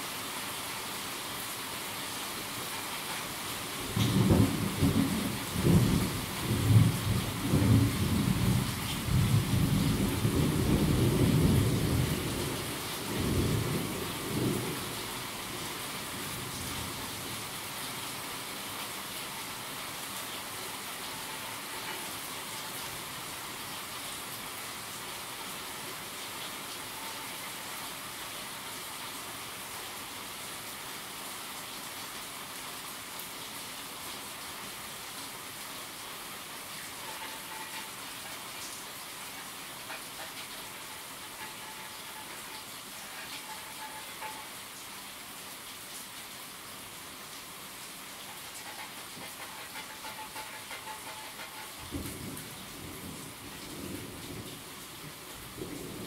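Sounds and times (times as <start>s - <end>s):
steady rain falling: 0.0s - 56.0s
low rumble of thunder: 3.9s - 15.4s.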